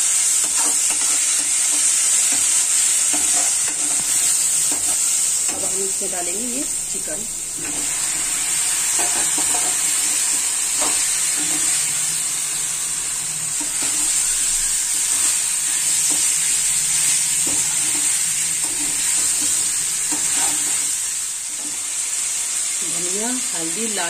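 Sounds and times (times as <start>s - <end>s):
chicken sizzling in hot oil: 0.0s - 24.0s
spatula scraping and knocking pan: 0.4s - 5.8s, 8.9s - 12.1s, 13.5s - 21.0s.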